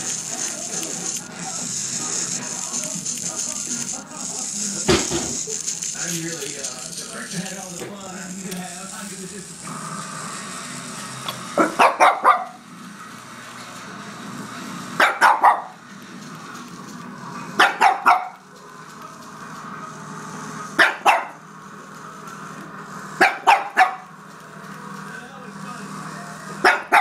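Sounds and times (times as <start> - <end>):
small dog yapping: 17.6 - 18.4.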